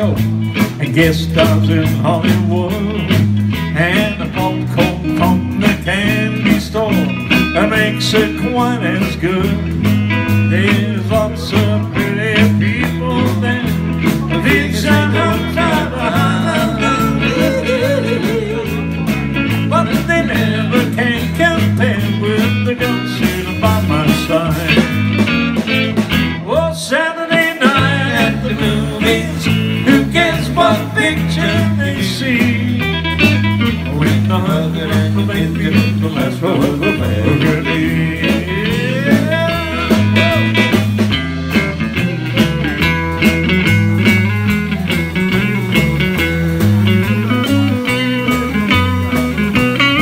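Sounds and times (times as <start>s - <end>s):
bass line: 0.0s - 50.0s
electric guitar line bending: 0.0s - 50.0s
drum beat: 11.5s - 26.4s, 27.4s - 50.0s.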